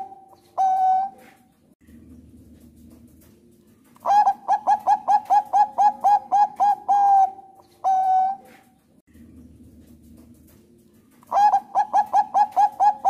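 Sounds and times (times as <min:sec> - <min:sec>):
dove cooing: 0:00.0 - 0:01.5, 0:04.0 - 0:08.8, 0:11.2 - 0:13.0.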